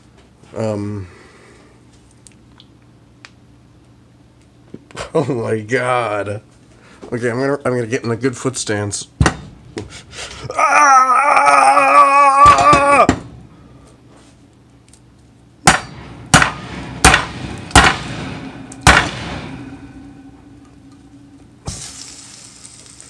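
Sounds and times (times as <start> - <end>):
man's wavering held voice: 10.5 - 13.1.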